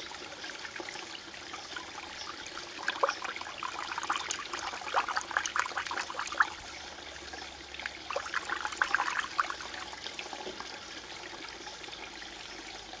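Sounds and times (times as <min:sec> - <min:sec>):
water trickling and gurgling: 0:00.0 - 0:13.0
small bubbling plinks: 0:01.8 - 0:10.8.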